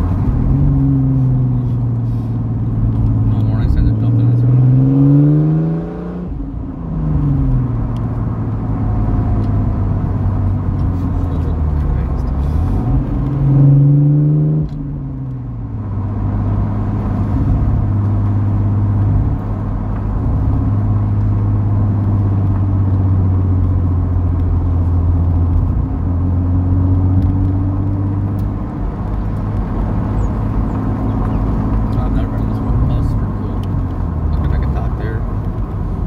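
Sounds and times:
car engine from inside cabin: 0:00.0 - 0:36.0.

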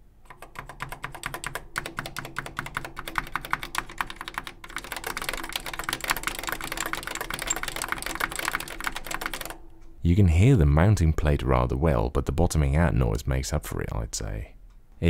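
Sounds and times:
fast typing on keyboard: 0:00.3 - 0:09.6.

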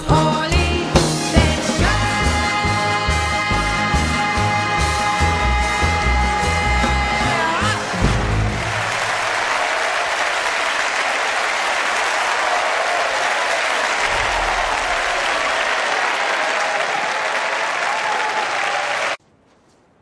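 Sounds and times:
audience applauding: 0:07.2 - 0:19.2.

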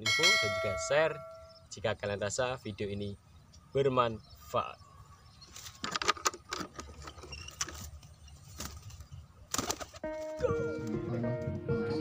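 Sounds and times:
background music: 0:10.0 - 0:12.0.

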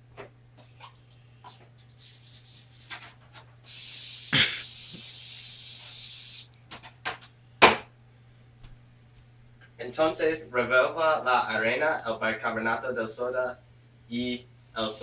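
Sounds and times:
aerosol spray hissing: 0:03.7 - 0:06.5.

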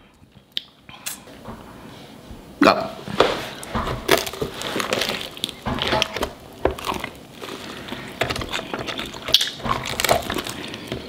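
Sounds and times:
person chewing food: 0:04.0 - 0:11.0.

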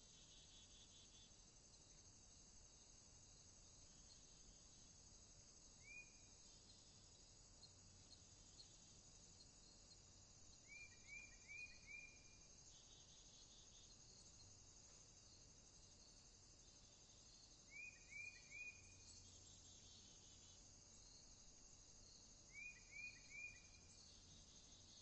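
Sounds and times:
crickets trilling: 0:00.0 - 0:25.0
bird chirping: 0:05.8 - 0:08.8, 0:10.5 - 0:14.4, 0:17.2 - 0:21.3, 0:22.0 - 0:25.0.

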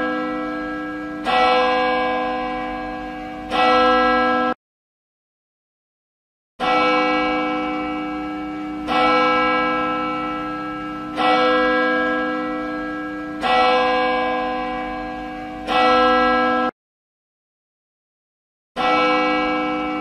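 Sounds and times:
church bell tolling: 0:00.0 - 0:04.6, 0:06.6 - 0:16.8, 0:18.8 - 0:20.0.

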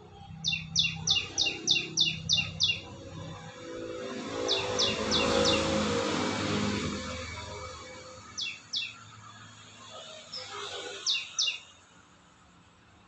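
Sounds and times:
squirrel chirping: 0:00.4 - 0:03.0, 0:08.4 - 0:09.0, 0:10.4 - 0:11.6.

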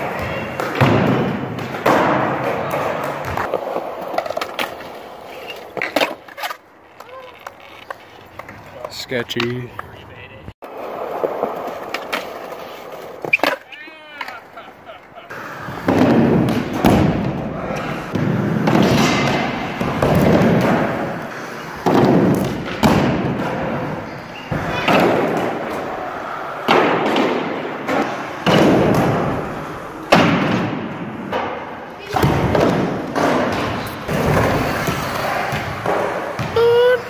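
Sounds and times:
skateboard clacks and landing thuds: 0:00.0 - 0:05.0, 0:15.5 - 0:36.4
skateboard wheels rolling: 0:00.0 - 0:37.0.

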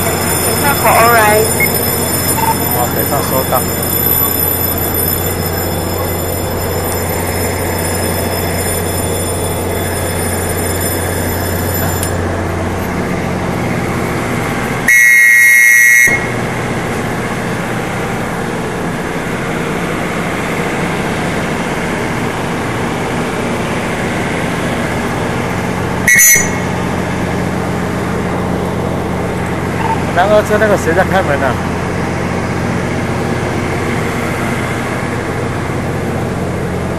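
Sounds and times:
train door warning buzzer: 0:00.0 - 0:16.5, 0:26.0 - 0:26.8
electric train humming: 0:00.0 - 0:36.9.

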